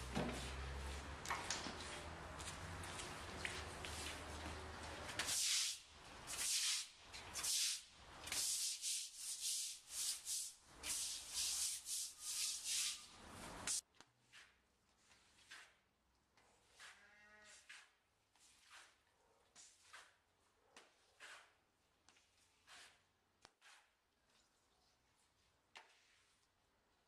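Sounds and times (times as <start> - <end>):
rustling scrapes: 16.5 - 20.3, 21.0 - 24.5.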